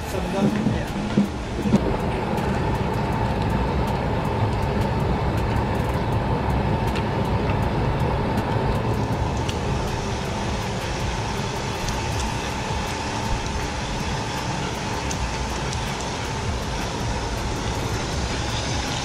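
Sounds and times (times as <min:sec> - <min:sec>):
pump machine hum: 0:00.0 - 0:19.0
thin whine: 0:00.0 - 0:19.0
bubbling water: 0:00.4 - 0:04.7.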